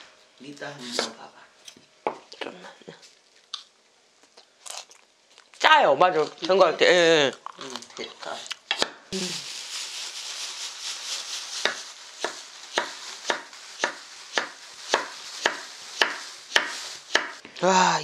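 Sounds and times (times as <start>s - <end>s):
flakes pouring into bowl: 9.2s - 17.2s.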